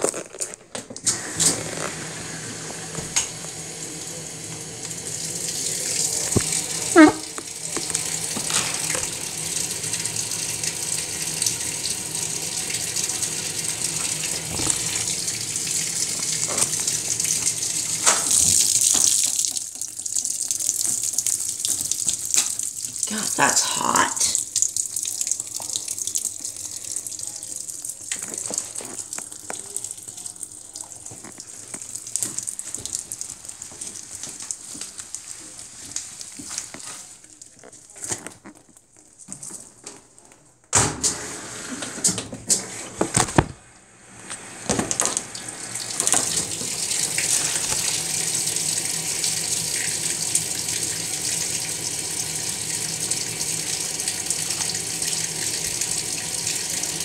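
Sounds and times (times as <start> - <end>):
water pouring into washer drum: 1.0 - 38.3, 44.1 - 57.0
knocks and splashes of laundry: 13.9 - 19.7, 43.0 - 43.6.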